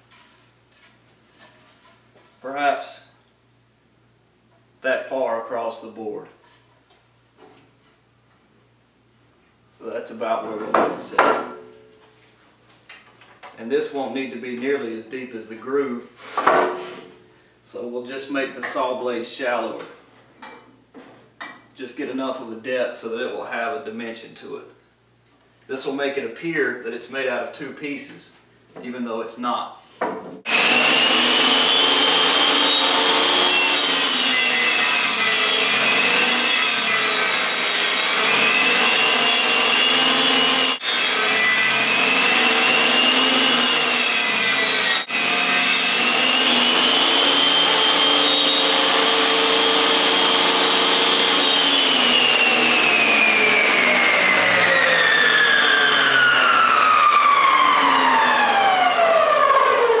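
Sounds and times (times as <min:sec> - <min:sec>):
table saw whining: 0:30.5 - 1:00.0.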